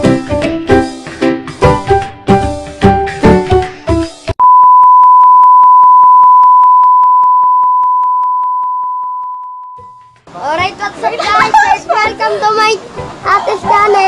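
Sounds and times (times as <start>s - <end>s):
music: 0.0s - 4.4s, 9.8s - 14.0s
steady test tone beep: 4.4s - 10.1s.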